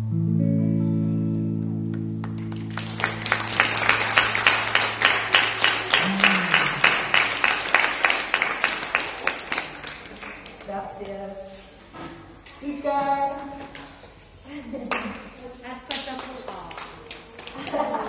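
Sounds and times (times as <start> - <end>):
electric guitar chord ringing: 0.0 - 7.7
audience clapping: 1.6 - 11.2, 15.9 - 18.0.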